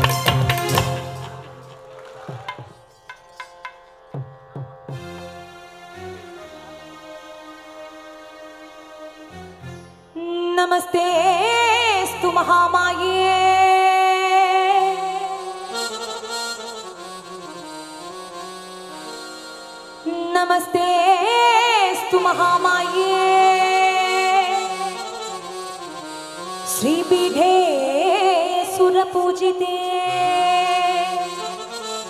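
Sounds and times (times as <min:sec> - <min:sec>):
sustained harmonium: 0:00.0 - 0:32.0
woman singing wordless phrases: 0:10.2 - 0:15.8, 0:20.0 - 0:25.3, 0:26.7 - 0:32.0.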